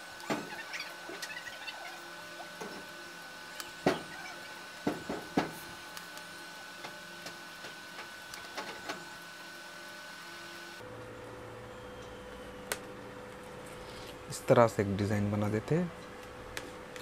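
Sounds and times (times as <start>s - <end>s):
faint high whine: 0.0s - 13.2s.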